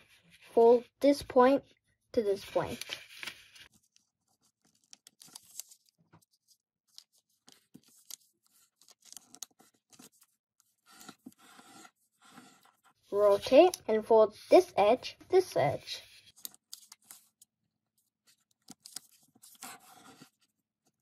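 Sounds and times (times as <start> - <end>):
paper crinkling and rustling: 2.3 - 13.5, 18.2 - 21.0.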